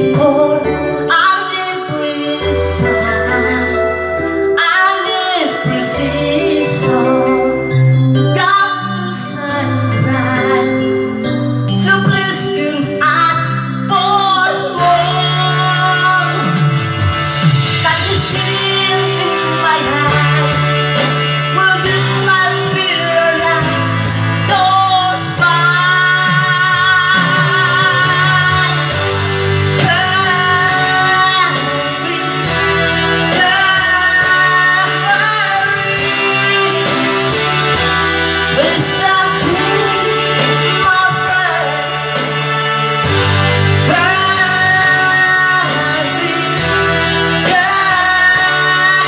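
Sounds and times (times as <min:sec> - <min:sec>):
man singing karaoke: 0:00.0 - 0:49.0
recorded backing music: 0:00.0 - 0:49.0.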